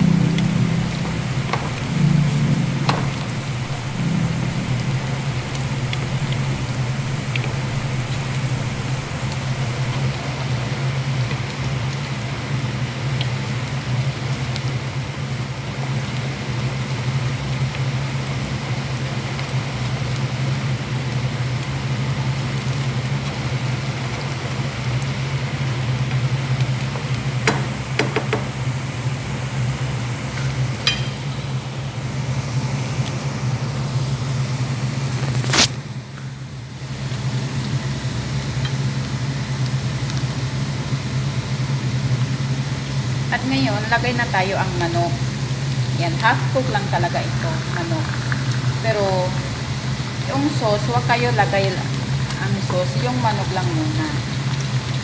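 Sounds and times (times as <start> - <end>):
steady low hum: 0.0 - 10.6
onions sizzling in hot oil: 0.0 - 55.0.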